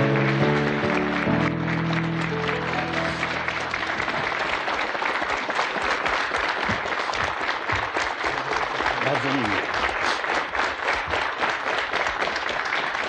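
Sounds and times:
studio music: 0.0s - 4.3s
studio audience applauding: 0.0s - 13.0s.

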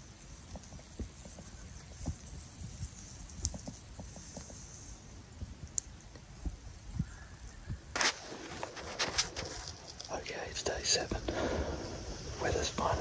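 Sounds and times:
faint high hiss: 8.0s - 13.0s.

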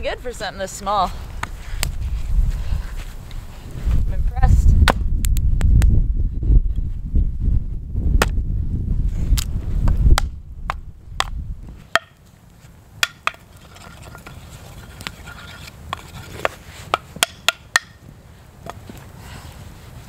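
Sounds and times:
low rumble: 1.1s - 11.8s
hatchet chopping wood: 10.1s - 12.2s, 13.0s - 13.4s, 15.9s - 18.0s.

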